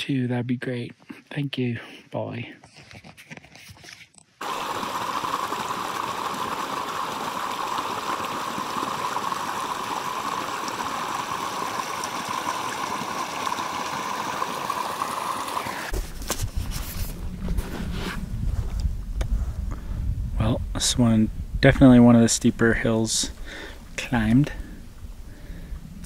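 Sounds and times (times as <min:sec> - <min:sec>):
stream running water: 0:04.4 - 0:17.2
low rumble: 0:16.4 - 0:22.0.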